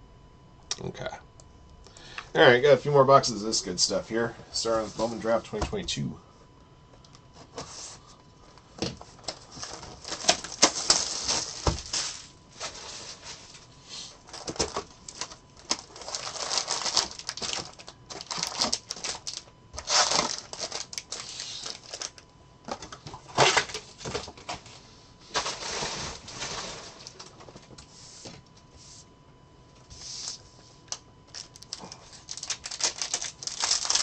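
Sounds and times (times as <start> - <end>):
foil card packs crinkling: 7.8 - 24.7, 30.2 - 34.0.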